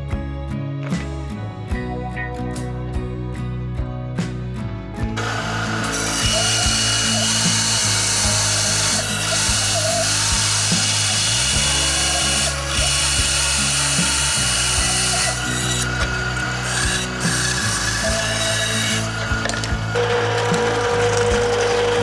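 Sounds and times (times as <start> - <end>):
bandsaw cutting wood: 5.2 - 22.0.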